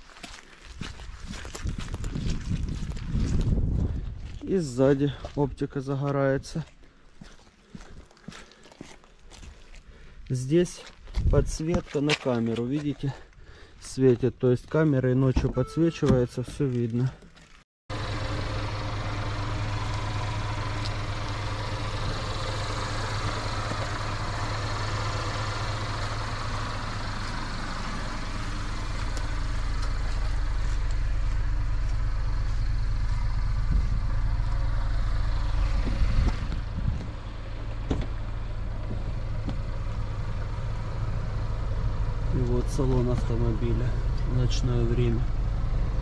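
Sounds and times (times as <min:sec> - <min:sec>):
car engine idling: 0:17.9 - 0:46.0.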